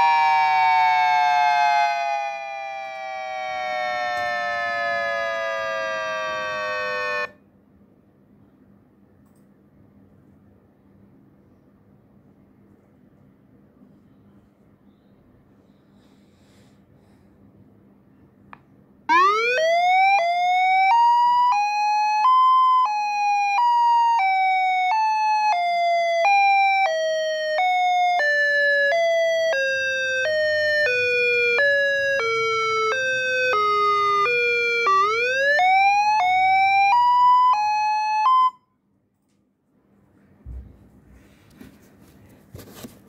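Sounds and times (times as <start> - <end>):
two-note electronic siren wail: 0.0 - 7.4, 19.1 - 38.6.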